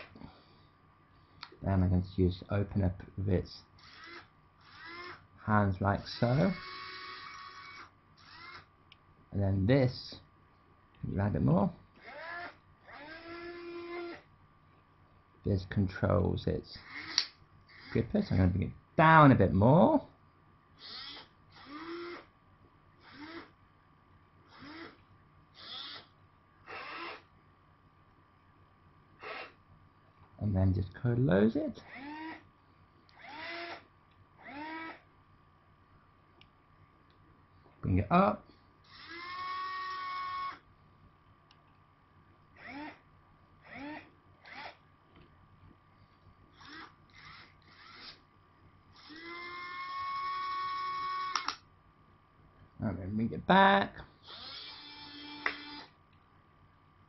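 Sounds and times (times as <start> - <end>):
small geared motors whirring: 3.8 - 5.2, 6.0 - 8.7, 12.0 - 14.3, 16.8 - 18.1, 20.8 - 22.3, 23.0 - 23.5, 24.5 - 25.0, 25.6 - 26.1, 26.7 - 27.3, 29.2 - 29.6, 31.8 - 32.4, 33.1 - 33.8, 34.4 - 35.0, 38.9 - 40.6, 42.6 - 43.0, 43.6 - 44.8, 46.5 - 48.2, 48.9 - 51.6, 54.2 - 55.9.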